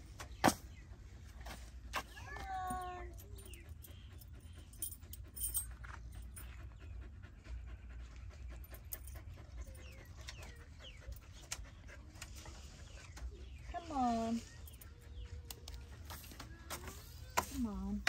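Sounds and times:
dog panting: 3.0 - 16.7.

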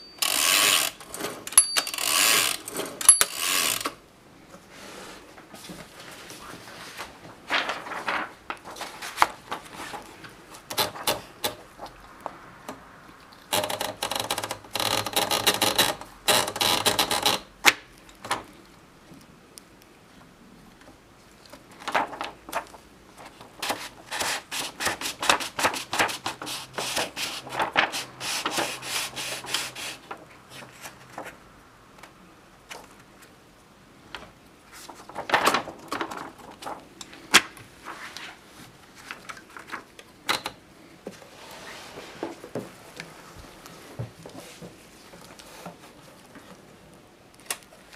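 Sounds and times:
typewriter clicks and rattles: 0.2 - 4.0, 13.5 - 17.5.

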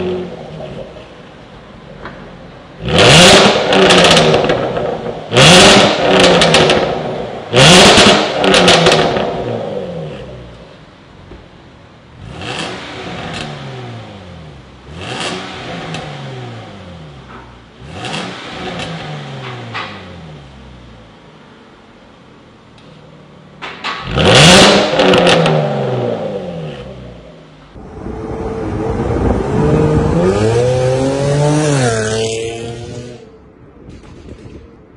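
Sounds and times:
car engine revving: 2.8 - 10.6, 12.1 - 20.9, 23.9 - 33.4.

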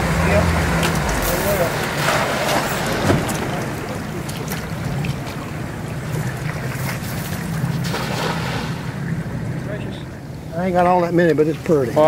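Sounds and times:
steady low hum: 0.0 - 7.9
water noise: 0.0 - 12.0
wind: 0.0 - 12.0.

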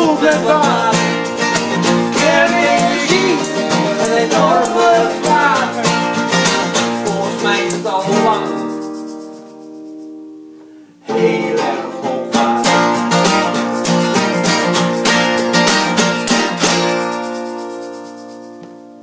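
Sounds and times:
person singing: 0.0 - 8.8, 11.0 - 13.5
egg shaker rhythm: 0.0 - 10.5, 12.6 - 19.0
acoustic guitars strumming: 0.0 - 19.0.

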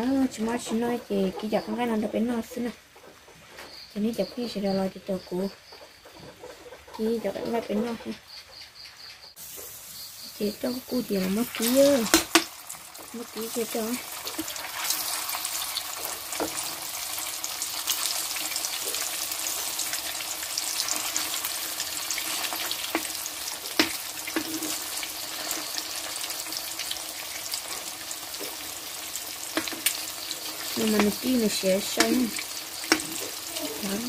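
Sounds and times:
meat sizzling in oil: 9.4 - 34.0.

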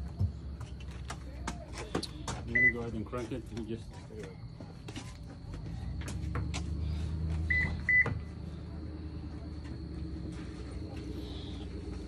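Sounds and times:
car engine running: 5.3 - 12.0.

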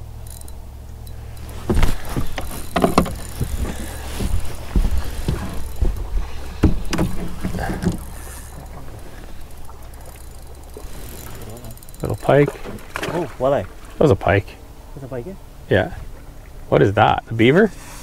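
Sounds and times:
steady low hum: 0.0 - 18.0
knocks and thumps on a boat: 1.4 - 14.0.

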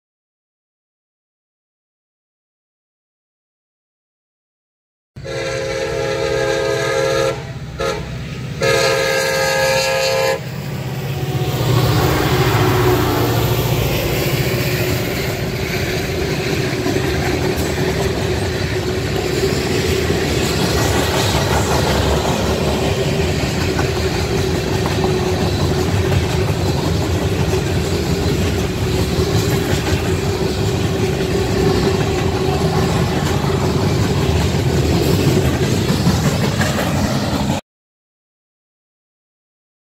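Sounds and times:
locomotive air horn blasts: 5.2 - 10.6
diesel locomotive rumble: 5.2 - 37.6
train cars clacking over rail joints: 12.0 - 37.6.

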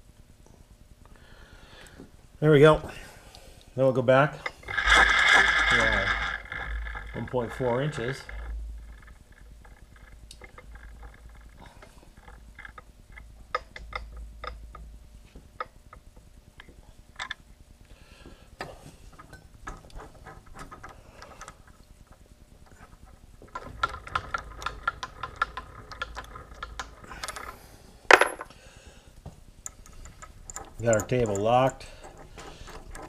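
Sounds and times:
metallic clicks of milling machine: 12.2 - 14.9, 29.6 - 33.0.

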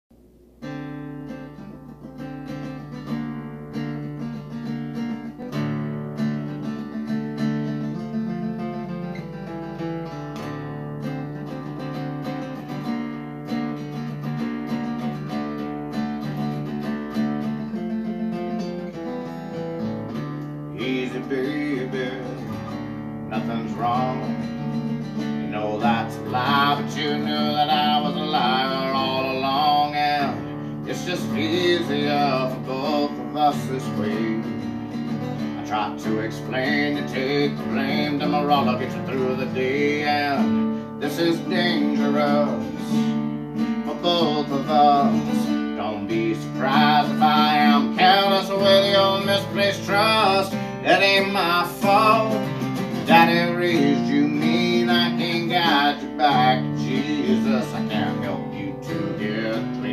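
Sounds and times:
acoustic guitar: 0.1 - 59.9
man singing: 20.7 - 59.9.

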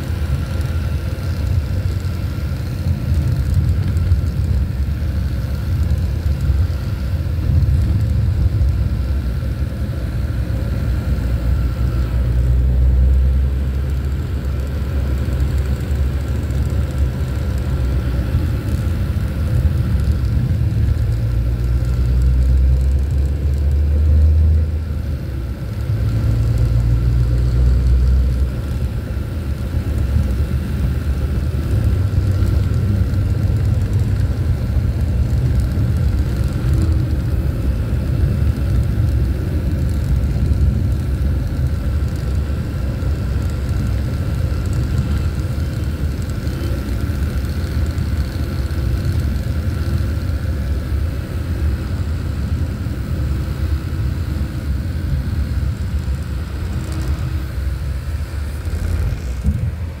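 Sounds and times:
car engine and tyre rumble: 0.0 - 60.0.

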